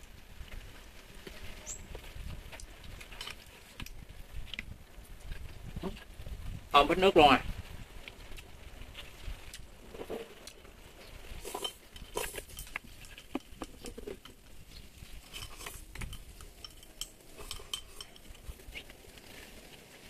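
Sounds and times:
utensils tapping and scraping bowls: 0:11.4 - 0:19.4.

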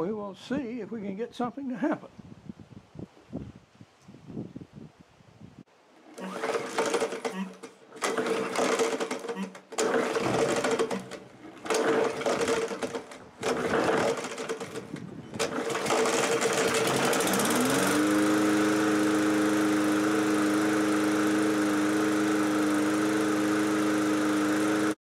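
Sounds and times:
lawn mower engine running: 0:05.9 - 0:25.0
recoil starter tugs: 0:06.0 - 0:25.0.

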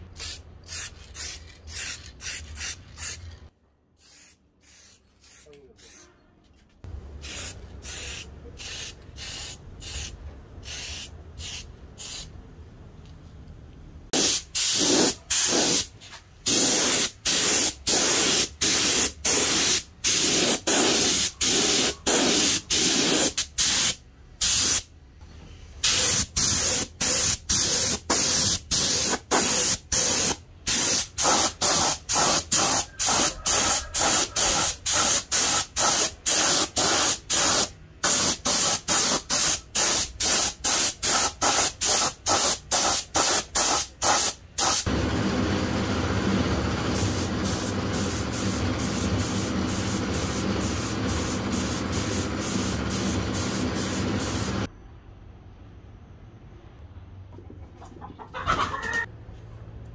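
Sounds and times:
spray nozzle hissing: 0:47.0 - 0:54.7.

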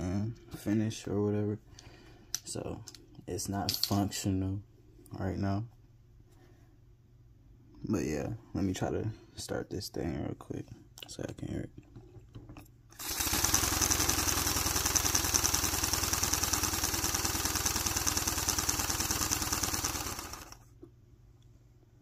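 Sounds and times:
air engine chattering puffs: 0:13.0 - 0:20.5.

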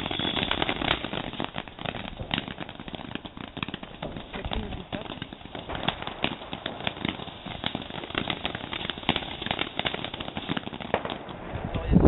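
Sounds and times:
firework crackling pops: 0:00.0 - 0:12.0.

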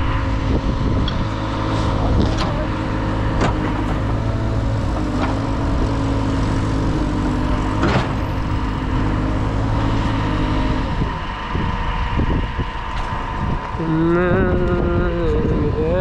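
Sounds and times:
diesel engine running: 0:00.0 - 0:16.0
steady high tone: 0:03.6 - 0:16.0.

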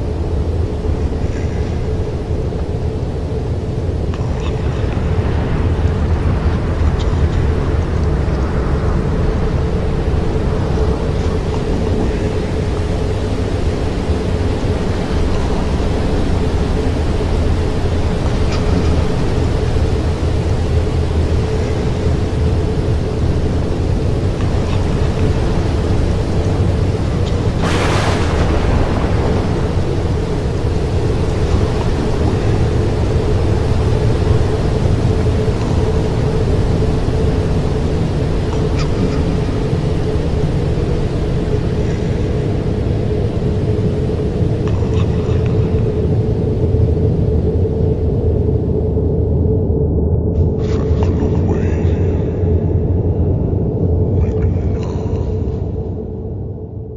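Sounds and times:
low storm rumble: 0:00.0 - 0:56.9
rain hiss: 0:10.0 - 0:46.6.

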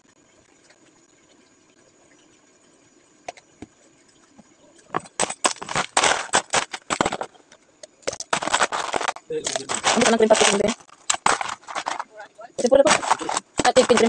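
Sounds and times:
ice cubes clattering: 0:04.9 - 0:07.4, 0:08.0 - 0:14.0
plastic bag crinkling: 0:05.1 - 0:07.3, 0:08.1 - 0:14.0.

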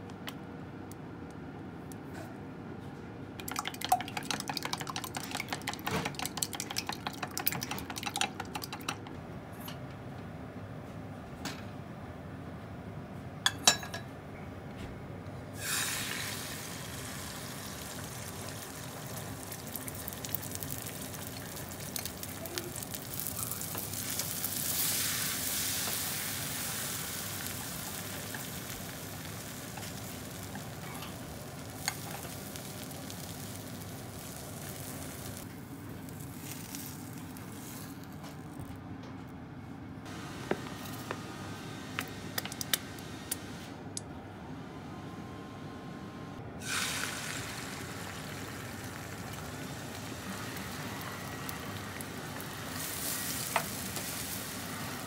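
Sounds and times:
chopsticks beating eggs in glass jug: 0:03.4 - 0:09.1
egg sizzling in frying pan: 0:03.4 - 0:09.1, 0:15.6 - 0:37.9, 0:46.6 - 0:55.0.

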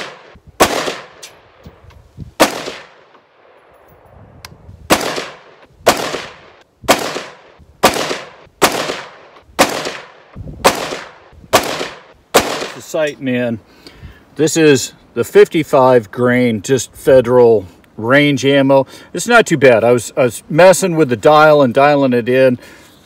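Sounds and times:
rifle gunshots with echo: 0:00.0 - 0:01.6, 0:02.4 - 0:03.7, 0:04.9 - 0:13.0.

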